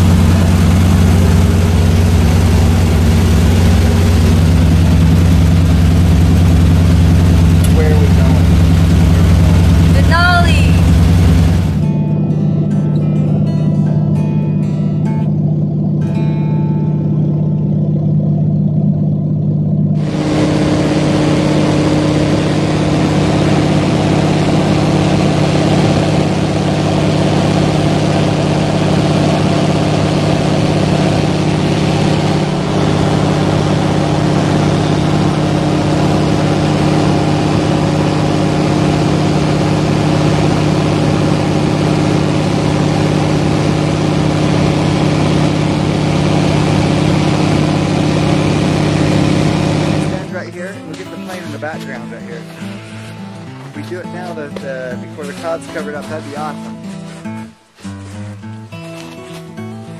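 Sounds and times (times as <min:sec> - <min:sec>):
loud rushing hiss: 0:00.0 - 0:11.8, 0:20.0 - 0:50.3
small plane engine droning: 0:00.0 - 0:59.9.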